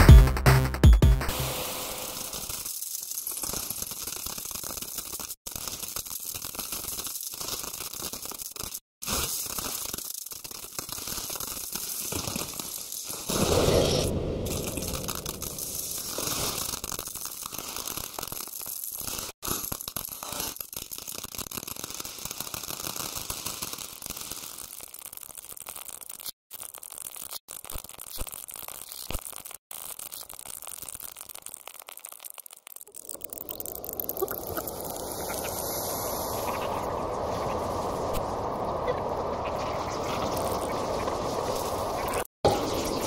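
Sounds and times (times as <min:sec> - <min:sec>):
static-like crackling noise: 0:26.6 - 0:43.0.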